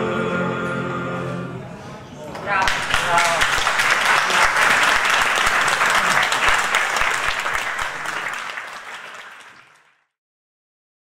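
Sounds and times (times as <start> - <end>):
audience applauding: 2.4 - 10.1.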